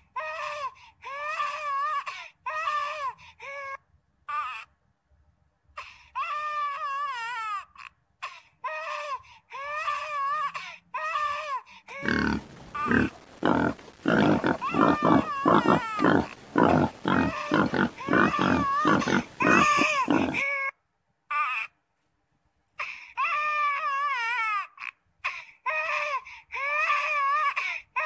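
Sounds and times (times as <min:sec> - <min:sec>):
baby monkey crying and screaming: 0:08.7 - 0:20.7.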